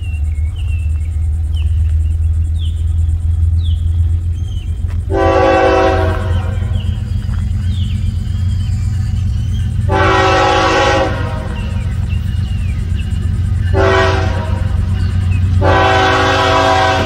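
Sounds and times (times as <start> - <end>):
bird chirps: 0.0 - 5.2, 6.0 - 15.7
train rumble: 0.0 - 17.0
locomotive air horn: 5.1 - 7.0, 9.8 - 12.0, 13.6 - 17.0.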